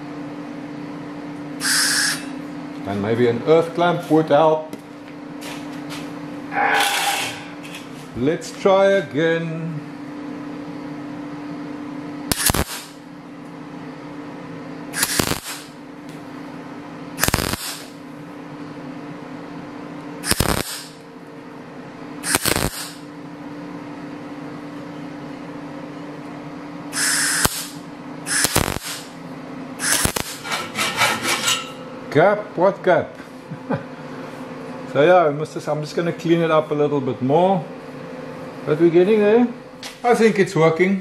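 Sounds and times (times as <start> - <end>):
steady welder hum: 0.0 - 41.0
welding arc crackling: 12.3 - 13.0, 15.0 - 15.8, 17.2 - 18.0, 20.2 - 21.0, 22.2 - 23.1, 27.0 - 29.2, 29.8 - 30.6.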